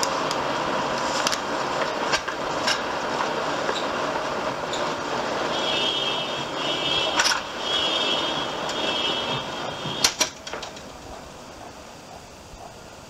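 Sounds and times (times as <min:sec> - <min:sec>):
traffic noise: 0:00.0 - 0:13.0.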